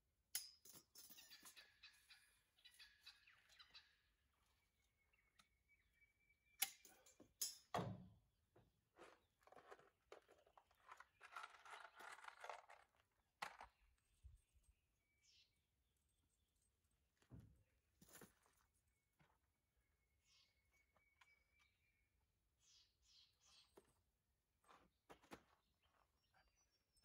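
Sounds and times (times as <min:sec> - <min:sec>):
tools clicking and knocking: 0:00.3 - 0:01.6, 0:06.6 - 0:07.9.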